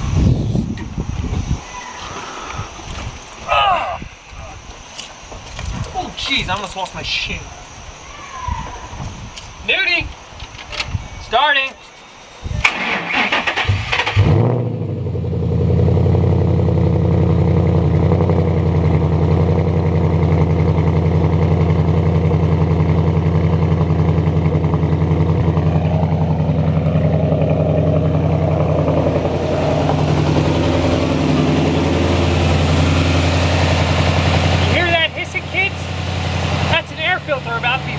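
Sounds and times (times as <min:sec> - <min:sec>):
car engine starting and idling: 0:12.6 - 0:37.9.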